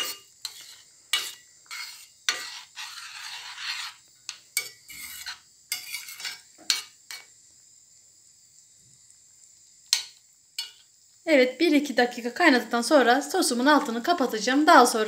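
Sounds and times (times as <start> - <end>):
spoon scraping sauce in pan: 0.0 - 7.3
spoon clinking against pan: 9.9 - 10.8.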